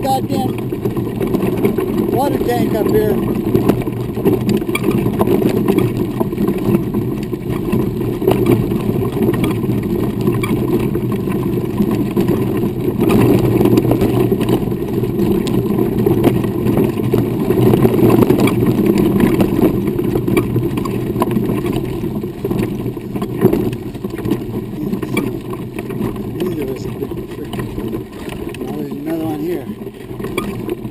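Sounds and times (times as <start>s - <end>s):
wheels rolling over gravel: 0.0s - 30.9s.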